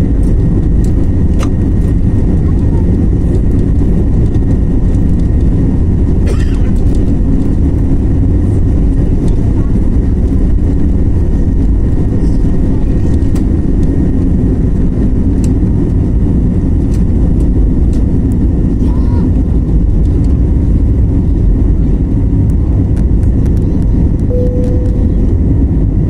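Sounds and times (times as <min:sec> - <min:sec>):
jet engines rumbling in cabin: 0:00.0 - 0:26.0
faint whining tones: 0:24.2 - 0:25.9.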